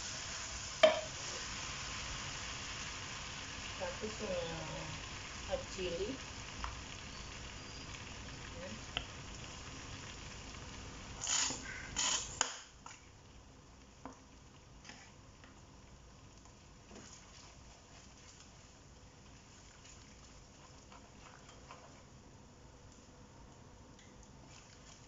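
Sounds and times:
sauce sizzling in a wok: 0:00.0 - 0:14.0.

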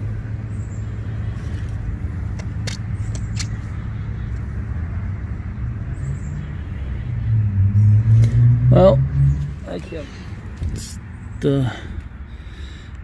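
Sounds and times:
vehicle engine humming: 0:00.0 - 0:13.0
sharp clicks: 0:01.6 - 0:03.6.

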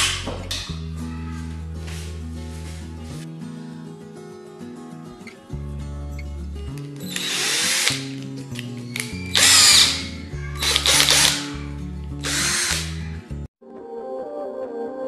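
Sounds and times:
background music: 0:00.0 - 0:15.0
drill motor whining: 0:07.0 - 0:08.2, 0:08.9 - 0:11.6, 0:12.2 - 0:13.0.

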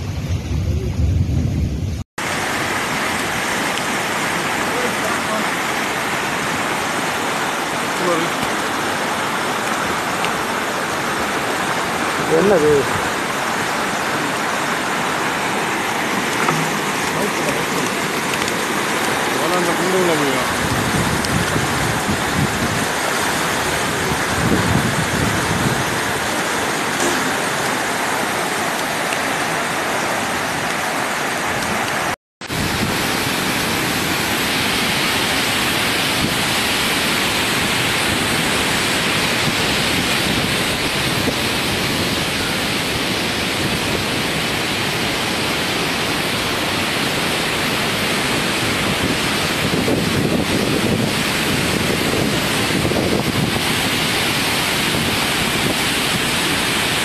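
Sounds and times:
rushing floodwater: 0:02.2 - 0:57.0
waterfall rushing: 0:02.2 - 0:57.0.

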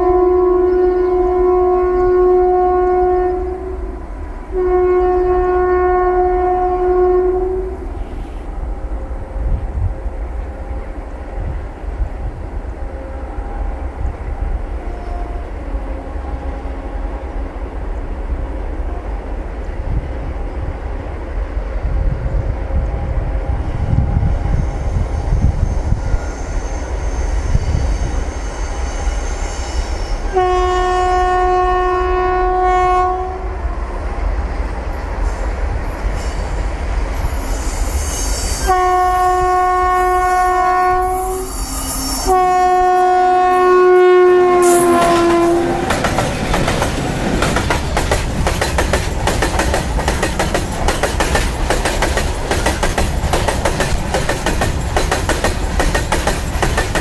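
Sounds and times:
locomotive horn blasts: 0:00.0 - 0:09.6, 0:14.7 - 0:17.4, 0:30.3 - 0:33.8, 0:38.4 - 0:46.0
train wheels clattering on track: 0:44.6 - 0:57.0.

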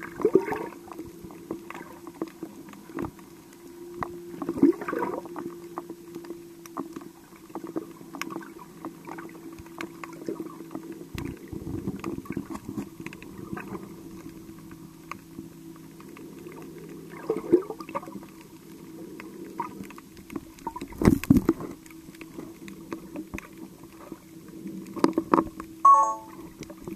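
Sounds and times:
low underwater hum: 0:00.0 - 0:26.9
muffled water movement: 0:00.0 - 0:26.9
sharp clicks and crackles: 0:05.4 - 0:17.2, 0:17.8 - 0:25.7.

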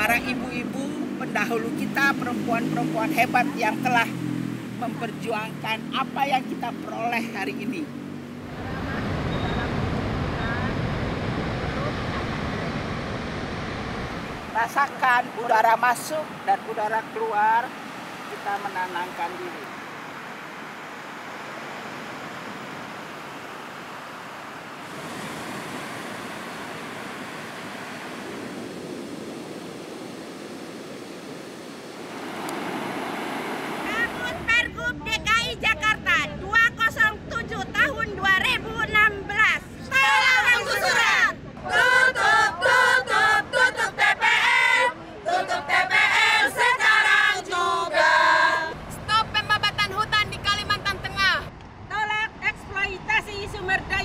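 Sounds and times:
ocean surf washing on beach: 0:00.0 - 0:06.7, 0:08.3 - 0:35.6
women chanting in unison: 0:39.8 - 0:48.8.

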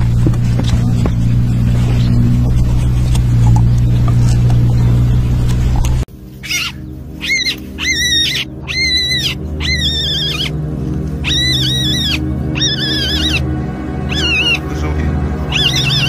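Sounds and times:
background music with low tones: 0:00.0 - 0:16.0
ground squirrel screaming: 0:06.4 - 0:10.6, 0:11.2 - 0:13.4, 0:14.1 - 0:14.6, 0:15.5 - 0:16.0.

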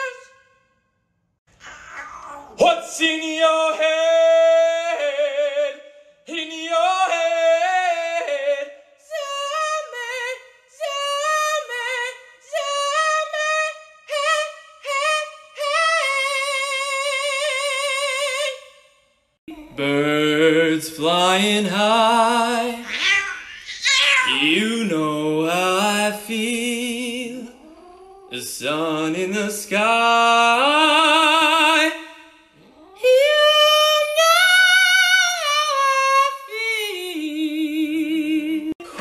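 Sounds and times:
high voice singing with vibrato: 0:00.0 - 0:00.5, 0:19.5 - 0:39.0.

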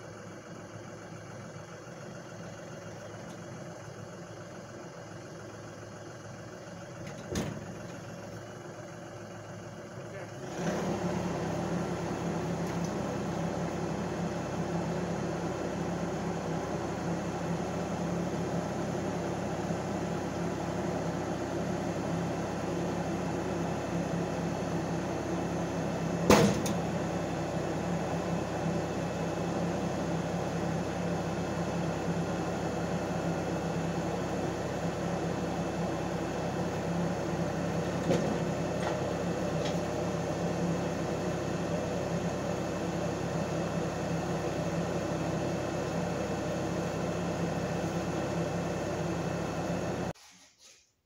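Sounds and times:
tractor engine running: 0:00.0 - 0:50.2.

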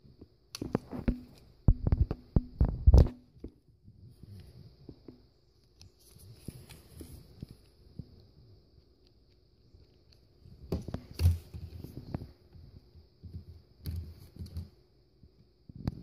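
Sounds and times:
plastic toy knocks and rubs: 0:00.7 - 0:03.5.

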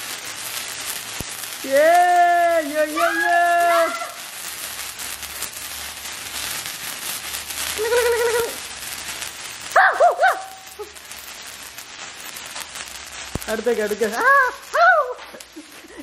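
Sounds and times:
sparklers fizzing and crackling: 0:00.0 - 0:16.0
short high cries: 0:02.7 - 0:04.3, 0:09.7 - 0:10.9, 0:14.2 - 0:15.4
held pitched call: 0:03.0 - 0:04.2.

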